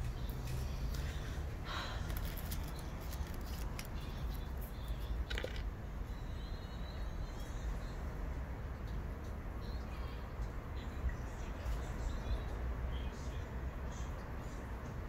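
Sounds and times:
faint bird chirping: 0.0 - 14.8.

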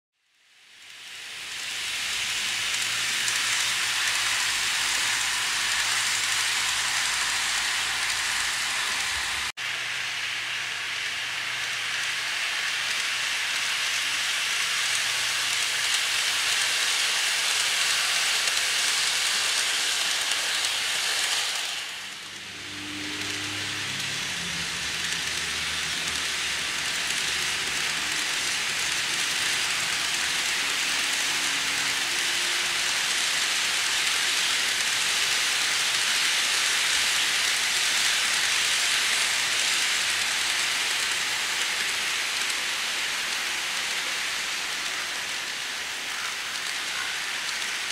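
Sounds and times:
model train wheels rattling: 0.7 - 47.9.

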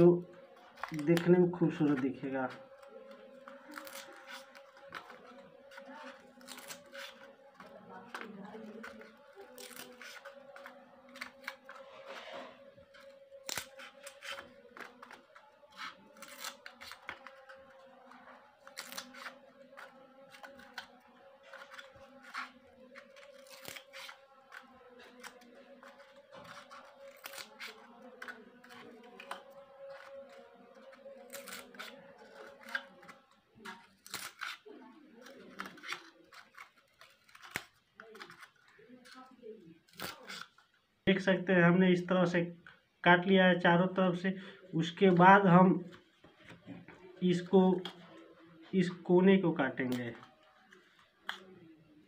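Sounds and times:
scissors snipping foam: 0.0 - 40.8, 49.9 - 51.5.

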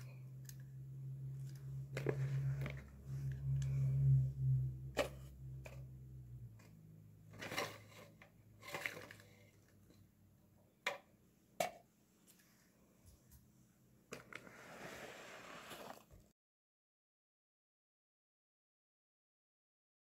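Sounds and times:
foam cup rustling against paper bag: 1.9 - 2.9, 14.2 - 16.2.

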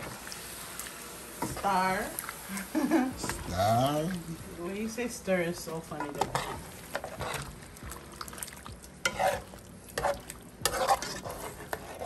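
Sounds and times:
pot sizzling lightly: 0.0 - 12.0
metal spoon scraping a metal pot: 5.9 - 7.5, 9.0 - 12.0.

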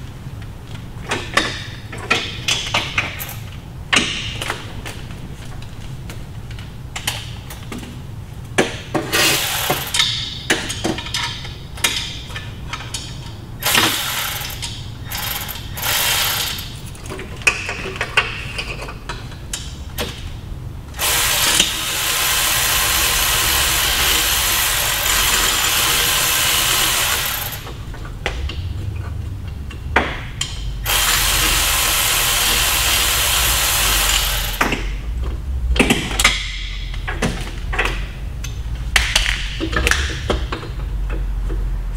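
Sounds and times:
power tool running: 9.1 - 10.0, 13.6 - 16.7, 21.0 - 27.8, 30.8 - 34.7.

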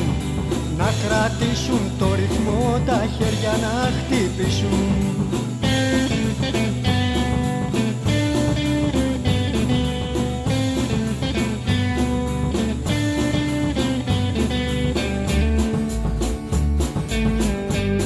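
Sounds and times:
bass guitar: 0.0 - 18.0
drum kit beat: 0.0 - 18.0
electric guitar lines: 0.0 - 18.0.

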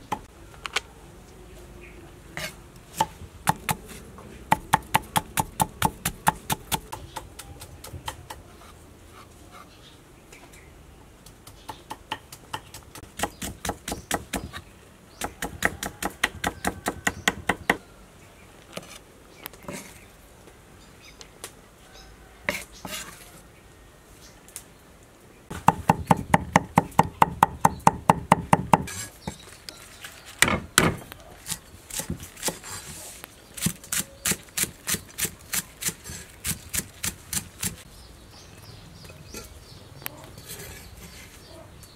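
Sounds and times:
cleaver chopping on wooden board: 4.5 - 8.4.

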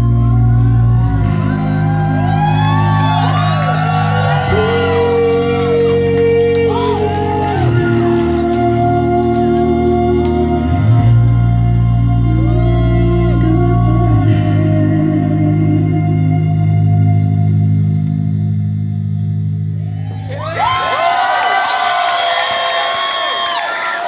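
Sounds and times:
electric guitar and bass chords: 0.0 - 20.8
high wailing voices: 0.6 - 10.6.

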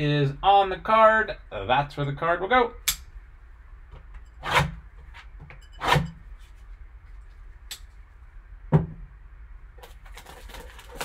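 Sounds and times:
knife slitting plastic wrap: 9.9 - 11.0.

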